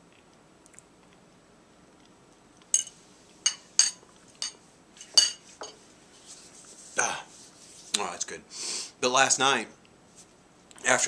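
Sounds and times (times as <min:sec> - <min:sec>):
metal fork clinking on dish: 0:02.7 - 0:05.8.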